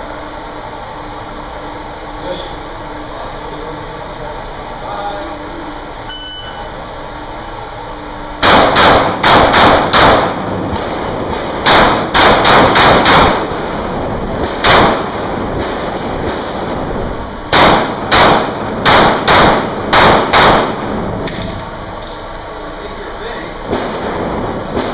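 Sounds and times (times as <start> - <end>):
shot timer beep: 6.1 - 6.7
handgun shots echoing indoors: 8.4 - 13.6, 14.4 - 16.7, 17.5 - 22.2.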